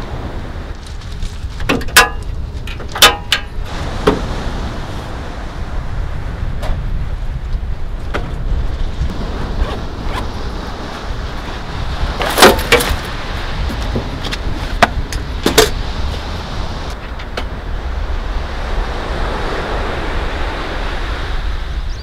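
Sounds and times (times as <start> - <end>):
low wind rumble: 0.0 - 22.0.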